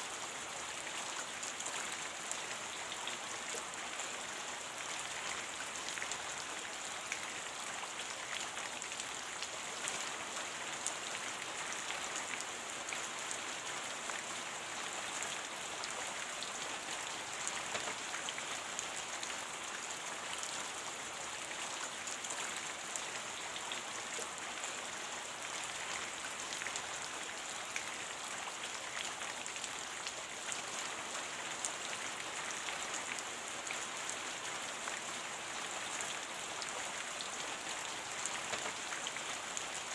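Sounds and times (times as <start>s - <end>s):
steady rain hiss: 0.0s - 39.9s
ticks of raindrops: 17.2s - 19.5s, 37.8s - 39.8s.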